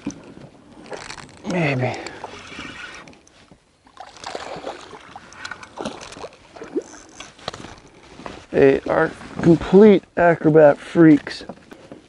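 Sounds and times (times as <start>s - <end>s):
fish splashing and thrashing: 0.0s - 8.1s
water sloshing: 0.0s - 9.8s.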